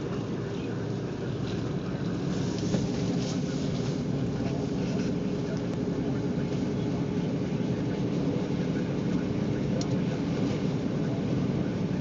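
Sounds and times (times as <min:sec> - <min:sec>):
car engine drone: 0:00.0 - 0:12.0
road and tyre noise: 0:00.0 - 0:12.0.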